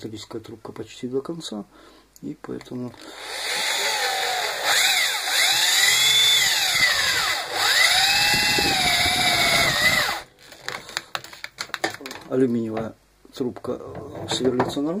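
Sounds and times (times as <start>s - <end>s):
electric drill whining: 3.0s - 10.8s.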